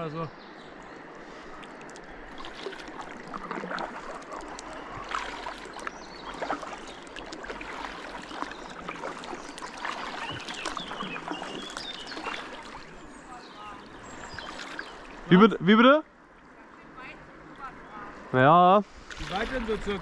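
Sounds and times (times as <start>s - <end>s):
water drips: 0.8s - 15.3s
steady wash of water: 0.8s - 20.0s
paddles splashing in water: 1.0s - 18.3s, 18.9s - 20.0s.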